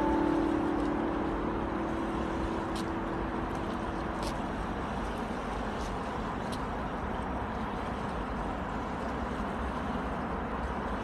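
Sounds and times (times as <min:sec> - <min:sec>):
acoustic guitar music: 0:00.0 - 0:05.8
distant road traffic: 0:00.0 - 0:11.0.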